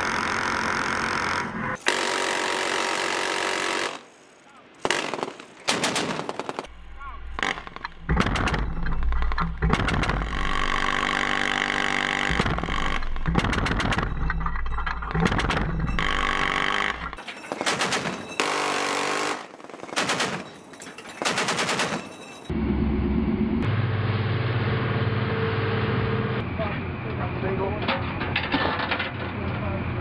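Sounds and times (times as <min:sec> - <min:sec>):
machine gun bursts: 0:15.2 - 0:22.2.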